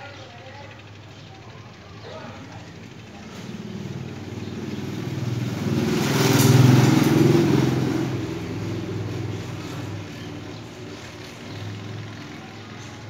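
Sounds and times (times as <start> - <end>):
vehicle engine passing by: 2.7 - 13.0.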